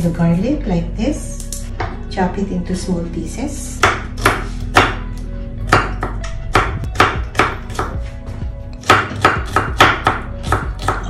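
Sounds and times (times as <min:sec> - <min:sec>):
background music: 0:00.0 - 0:11.0
knife chopping on wooden board: 0:03.8 - 0:05.1, 0:05.7 - 0:08.1, 0:08.8 - 0:11.0.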